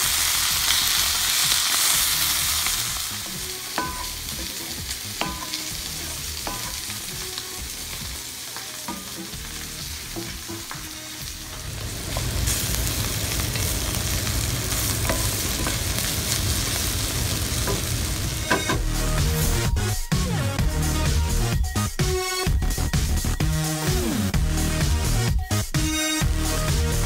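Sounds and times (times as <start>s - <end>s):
vegetables sizzling in a skillet: 0.0s - 19.9s
wooden spoon scraping a pan: 8.5s - 18.9s.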